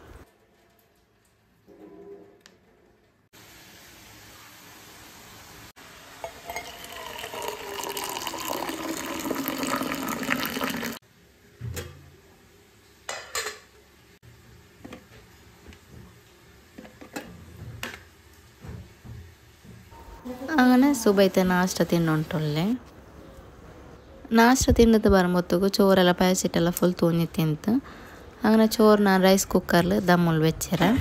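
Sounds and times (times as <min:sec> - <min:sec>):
water bubbling in saucepan: 0:06.2 - 0:11.0.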